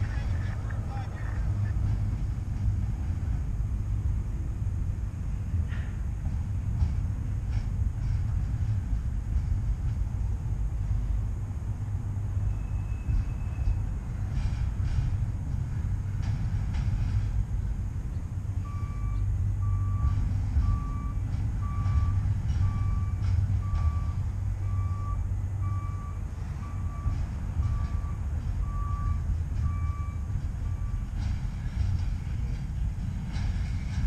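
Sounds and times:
freight train rumbling past: 0.0s - 34.0s
reversing alarm beeping: 18.6s - 31.4s.

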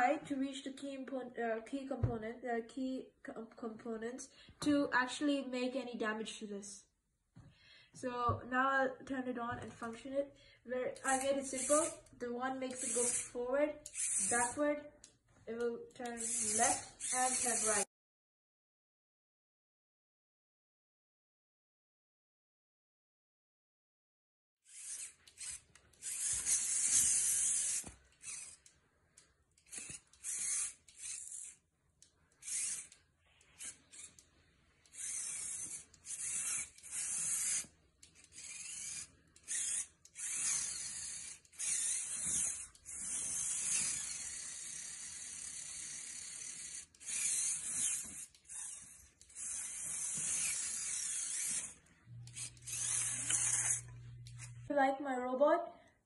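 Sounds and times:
small electric motors whirring: 10.9s - 15.2s, 15.9s - 17.9s, 24.6s - 54.7s.

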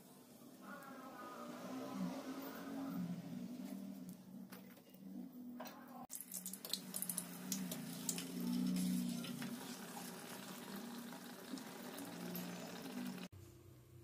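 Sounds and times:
batter frying in hot oil: 6.1s - 13.3s.

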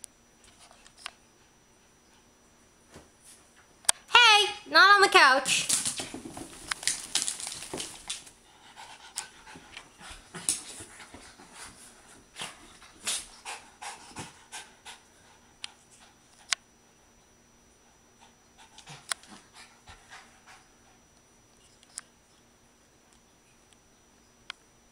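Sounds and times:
dog panting: 8.4s - 16.3s, 18.1s - 21.1s.

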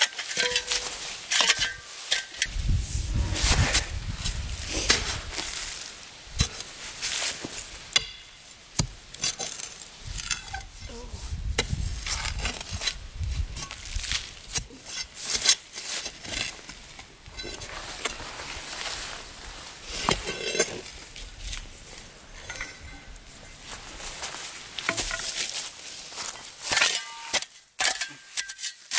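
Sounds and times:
steel bar clinking on stone: 0.1s - 2.5s.

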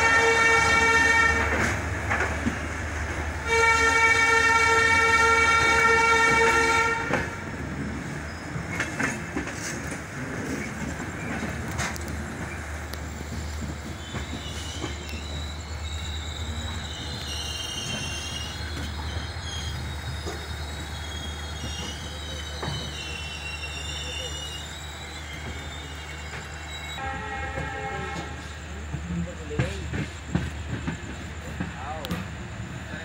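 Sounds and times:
train horn: 0.0s - 1.8s, 3.4s - 7.4s, 27.0s - 28.6s
wheels clacking over rail joints: 0.0s - 4.1s, 4.7s - 23.4s, 25.4s - 33.0s
train wheels rumbling: 0.0s - 33.0s
wheels squealing: 7.7s - 27.0s.

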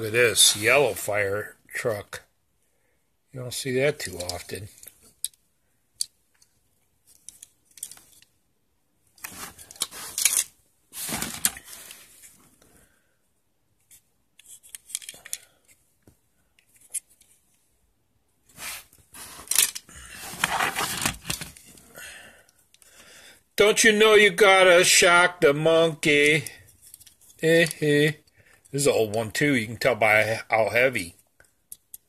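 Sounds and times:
plastic bag rustling: 11.0s - 12.2s.

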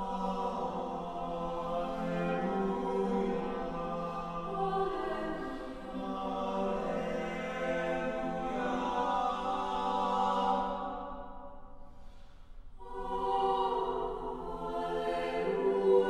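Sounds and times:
a cappella choir singing: 0.0s - 16.0s.

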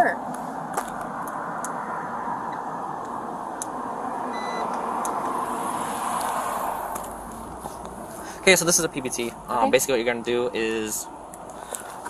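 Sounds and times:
passing vehicle road noise: 0.2s - 12.0s
short electronic beep: 4.3s - 4.7s.

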